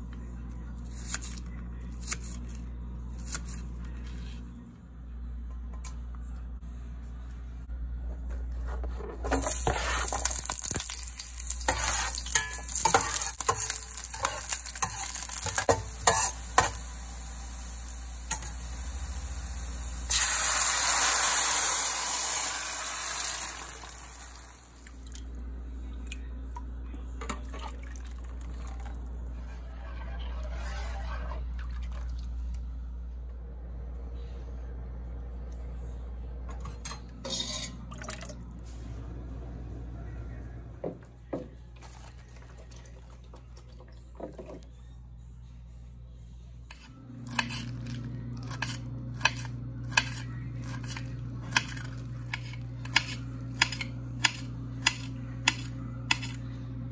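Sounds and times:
sauce stirred and cooking: 8.6 - 18.5
oil crackling and spattering: 9.4 - 15.7
sauce poured into oil sizzling: 19.5 - 24.6.

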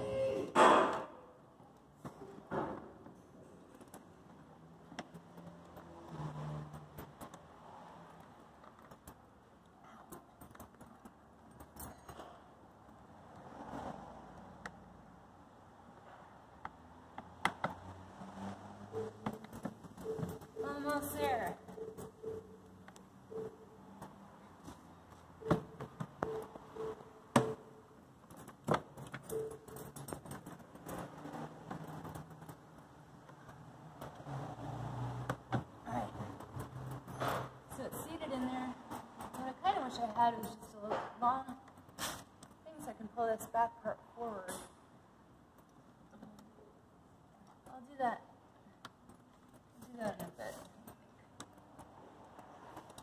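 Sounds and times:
short beeps: 18.9 - 19.4, 20.0 - 22.7, 23.3 - 24.0, 25.4 - 27.8, 29.3 - 29.8
metal bracelets jingling: 28.3 - 32.6.

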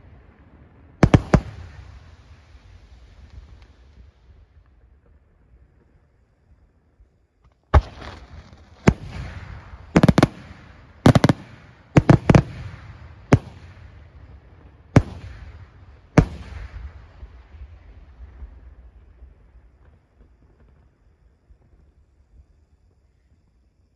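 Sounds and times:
rolling echo: 0.0 - 4.0, 7.7 - 20.8
firework shells booming: 1.0 - 2.1, 7.7 - 20.8.

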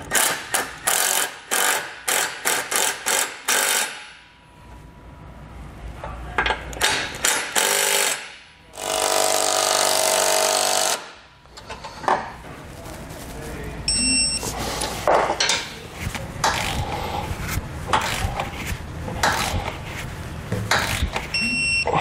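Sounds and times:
impact driver hammering: 0.0 - 4.3, 6.8 - 11.2.

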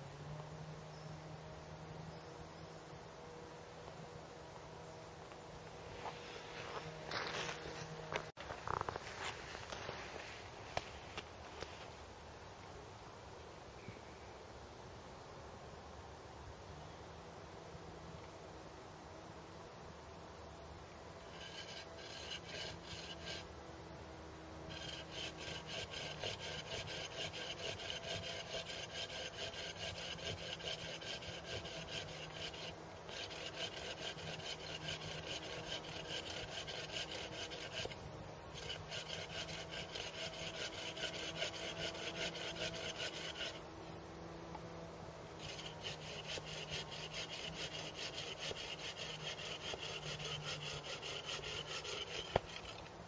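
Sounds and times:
hand saw cutting wood: 21.2 - 23.5, 24.6 - 43.6, 45.4 - 53.0.

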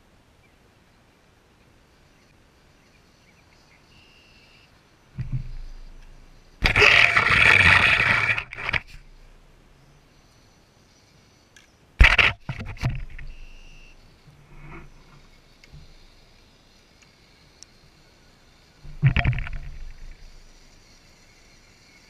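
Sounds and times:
short thump: 5.2 - 7.3, 12.0 - 13.6, 18.8 - 20.3
toy car crunching through brush: 5.6 - 9.1, 12.0 - 13.9.

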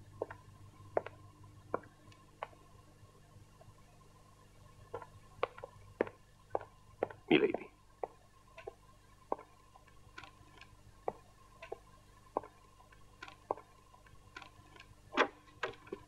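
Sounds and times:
faint steady hum: 0.0 - 16.0
light ticks and clicks: 0.1 - 2.7, 8.0 - 16.0.

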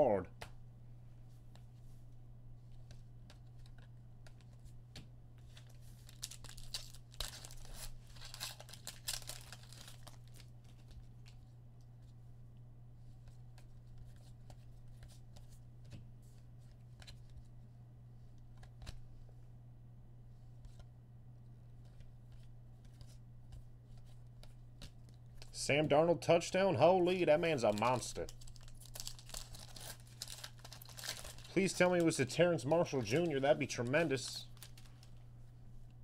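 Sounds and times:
steady low hum: 0.0 - 36.0
foil wrapper tearing and crinkling: 6.0 - 11.0, 27.6 - 32.2, 34.5 - 35.2.

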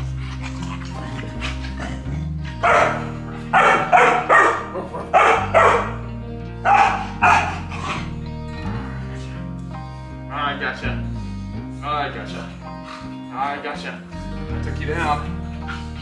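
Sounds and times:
background music: 0.0 - 16.0
puppy barking: 2.6 - 8.1.

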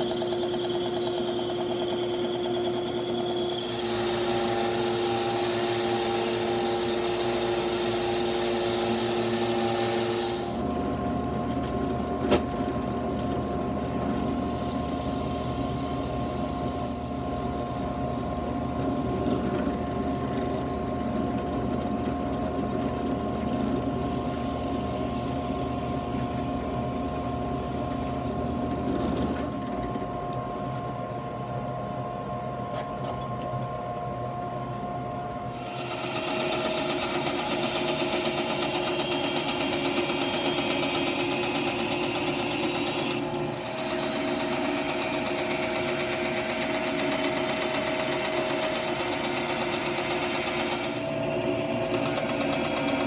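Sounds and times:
drill press boring wood: 0.0 - 10.6, 14.3 - 19.6, 23.8 - 29.2, 35.5 - 53.0
power saw cutting wood: 0.0 - 10.6, 35.5 - 53.0.

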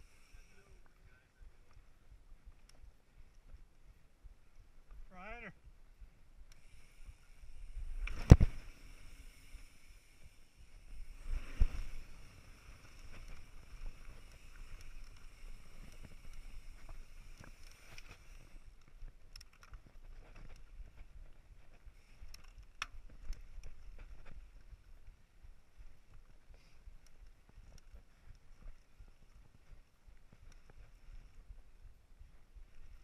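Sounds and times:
bike clicks and rattles: 11.6 - 24.5, 25.7 - 31.4.

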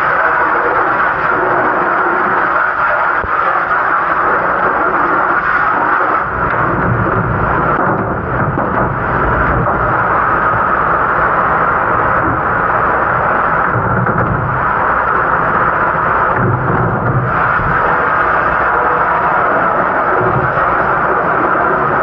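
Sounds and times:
dish machine running: 0.0 - 22.0
water spraying: 0.0 - 22.0.

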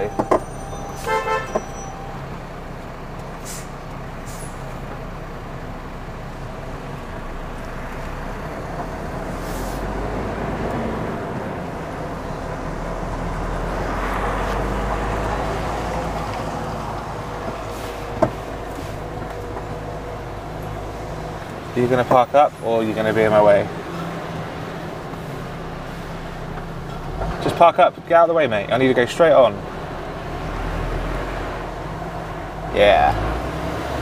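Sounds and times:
lorry diesel engine droning: 0.0 - 34.0
short horn toot: 0.4 - 2.2.

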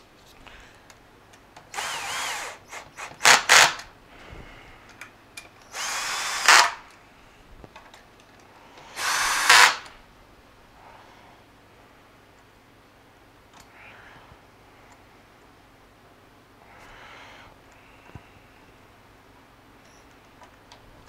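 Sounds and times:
power drill driving screws: 1.7 - 3.8, 5.6 - 6.8, 8.9 - 9.9.

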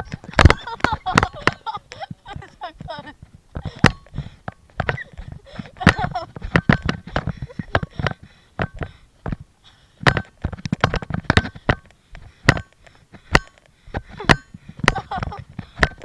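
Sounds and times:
camera knocks and scuffs: 0.0 - 16.0.

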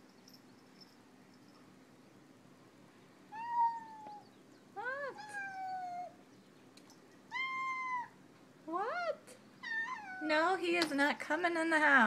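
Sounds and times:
cat meowing: 3.3 - 4.2, 7.3 - 8.2, 9.6 - 10.3.

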